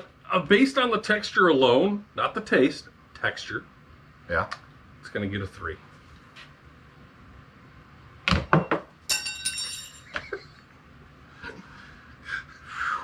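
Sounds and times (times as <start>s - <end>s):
metal fork hitting hard floor: 8.6s - 10.2s.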